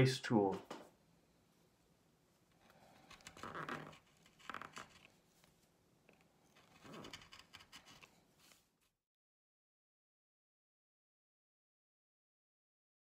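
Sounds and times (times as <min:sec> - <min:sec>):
gouge scraping wood: 0:02.6 - 0:05.1, 0:06.6 - 0:08.2.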